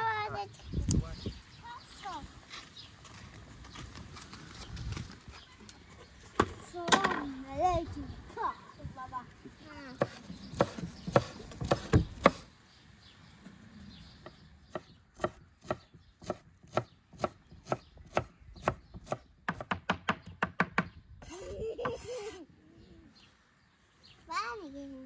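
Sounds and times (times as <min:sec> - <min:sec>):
knife chopping on wooden board: 0:10.0 - 0:12.4, 0:14.7 - 0:20.9.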